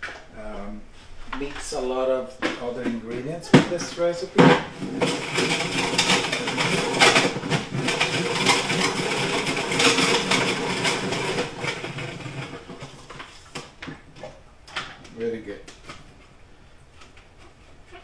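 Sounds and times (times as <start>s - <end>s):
salad spinner whirring and rattling: 4.7s - 13.4s.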